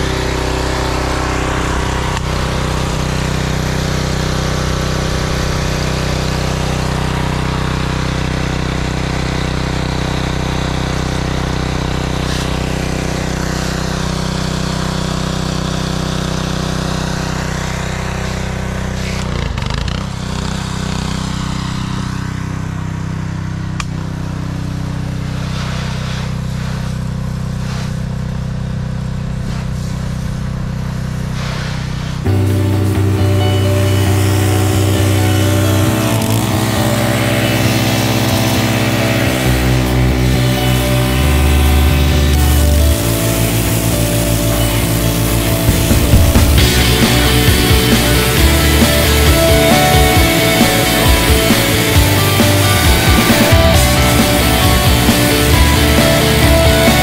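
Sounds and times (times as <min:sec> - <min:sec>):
pressure washer engine running: 0:00.0 - 0:57.0
high-pressure spray hissing: 0:12.0 - 0:15.0, 0:25.0 - 0:57.0.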